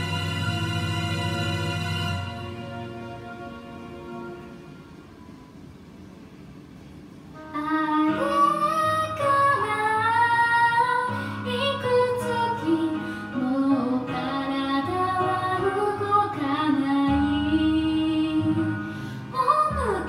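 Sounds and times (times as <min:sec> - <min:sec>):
karaoke backing track: 0:07.4 - 0:20.0
woman singing into microphone: 0:07.5 - 0:20.0.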